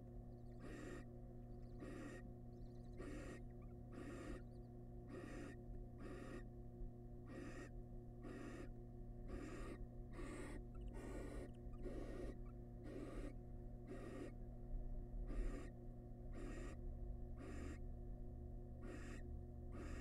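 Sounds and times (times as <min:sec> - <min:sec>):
steady low hum: 0:00.0 - 0:20.0
owl chicks hissing: 0:00.5 - 0:01.1, 0:01.7 - 0:06.5, 0:07.3 - 0:14.4, 0:15.3 - 0:16.8, 0:17.4 - 0:17.8, 0:18.8 - 0:20.0.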